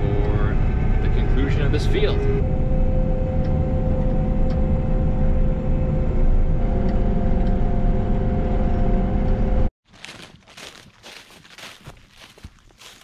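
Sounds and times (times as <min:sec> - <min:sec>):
combine engine drone with whine: 0:00.0 - 0:09.7.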